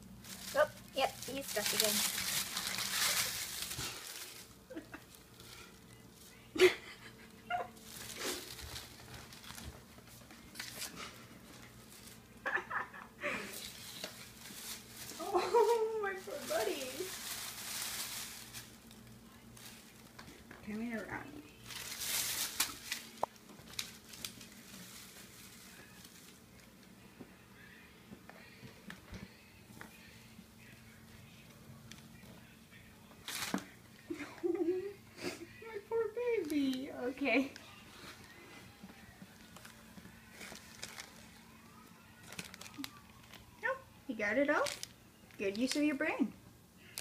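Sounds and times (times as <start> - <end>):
plastic bag crinkling: 0.0 - 6.4, 7.5 - 12.3, 13.5 - 20.2, 21.5 - 26.7, 36.3 - 36.8, 39.2 - 43.6, 44.5 - 46.0
rat scurrying: 0.2 - 6.4, 13.5 - 20.5, 21.6 - 26.7.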